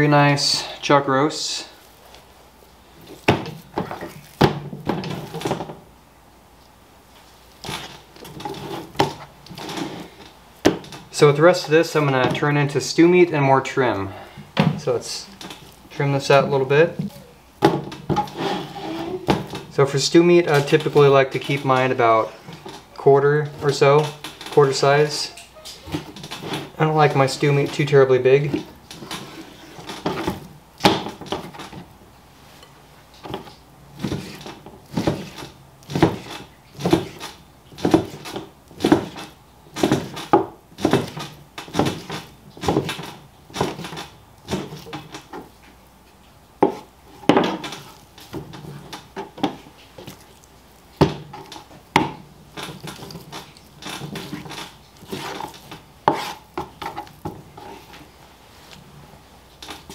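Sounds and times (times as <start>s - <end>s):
knife chopping on plastic board: 33.3s - 45.1s, 46.6s - 50.2s, 51.0s - 57.4s.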